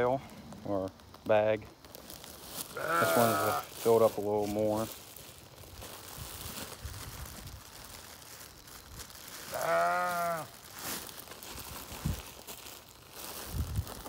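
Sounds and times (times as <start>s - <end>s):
plastic bag crinkling: 0.4s - 14.0s
drawn-out bleat: 2.6s - 3.8s, 9.4s - 10.7s.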